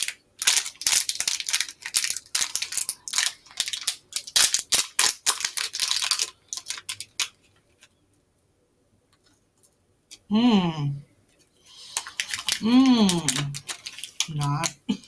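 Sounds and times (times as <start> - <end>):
plastic wrapper crinkling: 0.0 - 8.0, 11.7 - 15.0.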